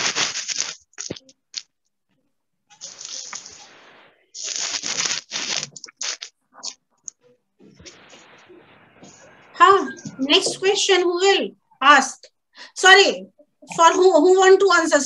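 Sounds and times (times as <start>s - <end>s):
crackling microphone noise: 2.7s - 10.8s.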